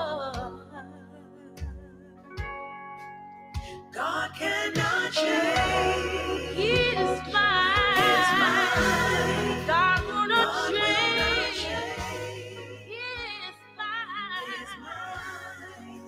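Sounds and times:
gospel singing voices: 3.6s - 16.0s
sustained bass accompaniment: 5.2s - 13.5s.

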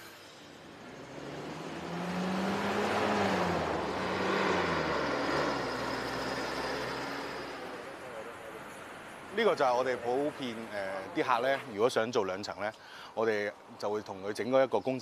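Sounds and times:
engine passing by: 0.0s - 9.0s
road traffic passing: 0.0s - 12.1s.

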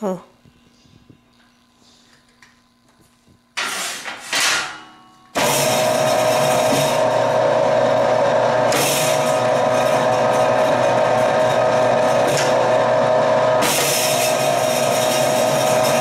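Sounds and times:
mixer motor running: 5.3s - 16.0s.

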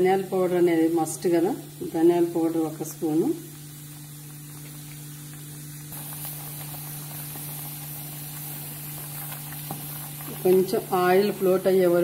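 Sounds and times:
curry simmering with steady hiss: 0.0s - 12.0s
gas stove low hum: 0.0s - 12.0s.

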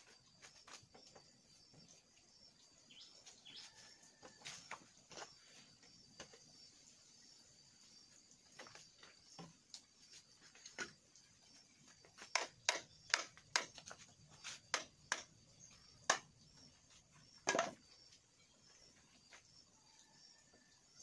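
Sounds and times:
bamboo poles knocking: 12.0s - 16.4s, 17.4s - 17.8s.

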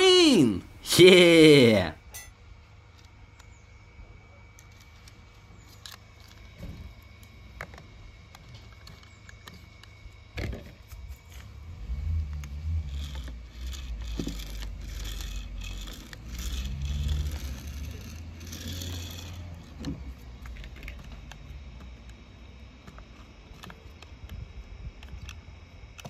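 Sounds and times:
toy wheels scraping across paper: 11.1s - 21.2s.

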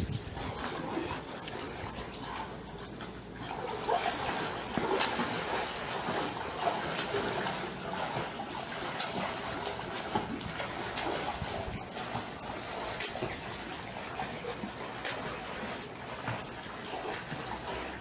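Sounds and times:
gusty wind: 0.0s - 1.0s, 11.2s - 12.0s
pool water splashing: 0.3s - 18.0s.

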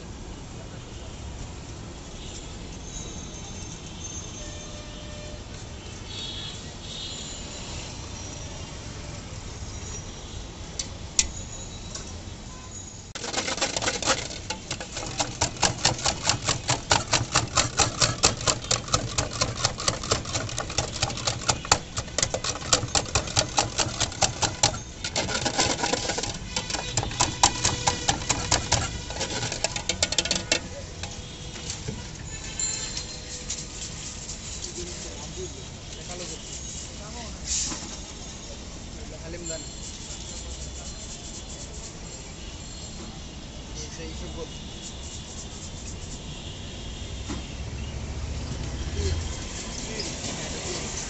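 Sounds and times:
stick churning gel in metal jug: 13.2s - 31.3s.

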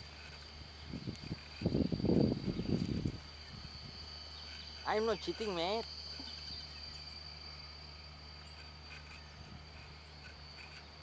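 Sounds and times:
insects droning: 0.0s - 11.0s
faint high chirps: 0.2s - 11.0s.

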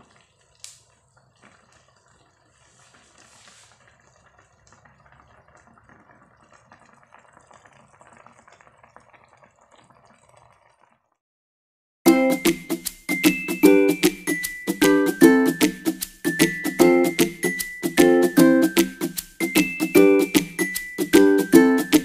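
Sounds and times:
broth bubbling in a wok: 0.0s - 11.2s.

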